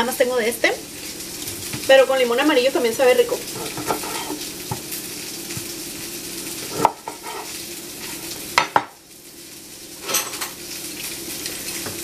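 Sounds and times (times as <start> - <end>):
kitchen hiss with low hum: 0.0 - 12.0
knife knocking on cutting board: 3.7 - 4.9, 6.8 - 7.2, 8.6 - 9.0.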